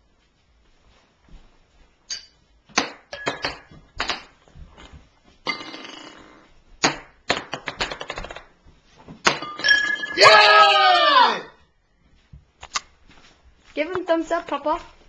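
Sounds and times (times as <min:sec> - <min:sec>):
balls clinking into glasses: 0:02.1 - 0:04.3, 0:05.4 - 0:06.5, 0:09.2 - 0:10.4
ping pong balls bouncing: 0:02.1 - 0:04.4, 0:05.4 - 0:08.6, 0:09.2 - 0:10.2.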